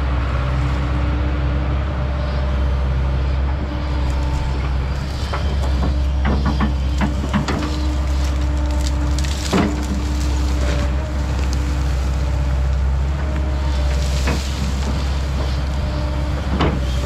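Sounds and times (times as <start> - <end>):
excavator diesel engine running: 0.0 - 17.0
machine knocks and clanks: 5.2 - 10.1, 16.4 - 17.0.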